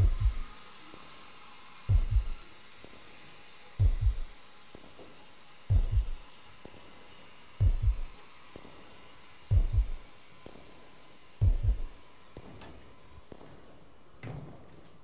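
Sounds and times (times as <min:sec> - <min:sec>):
heartbeat double thuds: 0:00.0 - 0:00.5, 0:01.9 - 0:02.4, 0:03.8 - 0:04.3, 0:05.7 - 0:06.2, 0:07.6 - 0:08.1, 0:09.5 - 0:10.0, 0:11.4 - 0:12.0.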